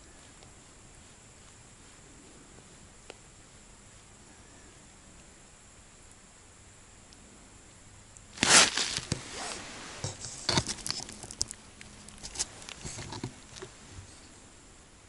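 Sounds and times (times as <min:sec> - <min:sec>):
rustling and crunching handling: 0:08.3 - 0:14.4.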